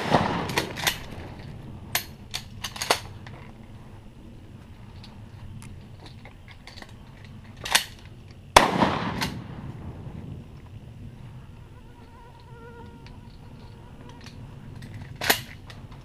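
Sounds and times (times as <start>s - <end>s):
shotgun blast with echo: 0.0s - 0.9s, 8.6s - 10.0s.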